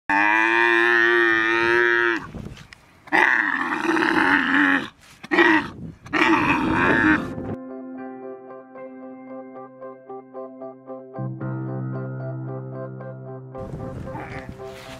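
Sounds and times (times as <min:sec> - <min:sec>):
camel bellowing: 0:00.1 - 0:02.4, 0:03.1 - 0:07.5, 0:14.0 - 0:14.9.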